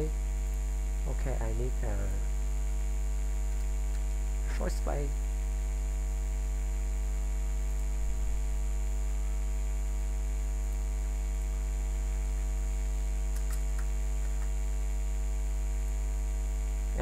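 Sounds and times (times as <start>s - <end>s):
electrical mains hum: 0.0s - 17.0s
faint clicks: 13.3s - 14.6s.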